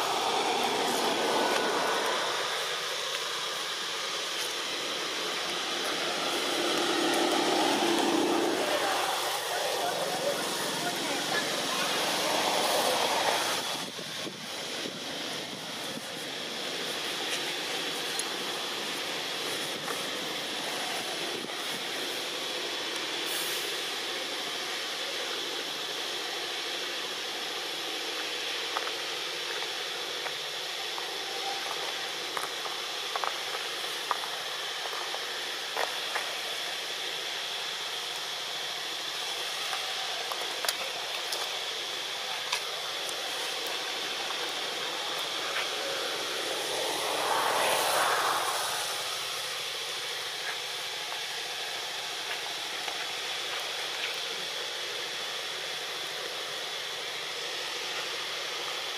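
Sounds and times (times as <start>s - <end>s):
whooshing swell: 0.0s - 3.6s, 44.6s - 50.1s
steady hiss: 0.0s - 58.9s.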